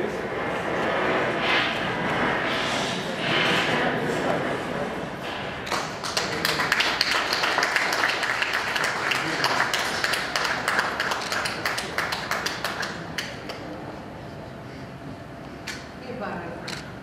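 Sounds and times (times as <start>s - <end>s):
audience clapping: 5.6s - 13.7s.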